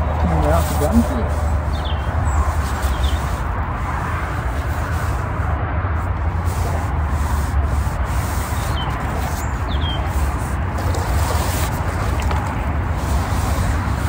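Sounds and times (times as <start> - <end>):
distant motorway traffic: 0.0 - 14.0
bird chirps: 1.7 - 3.3, 8.6 - 10.1.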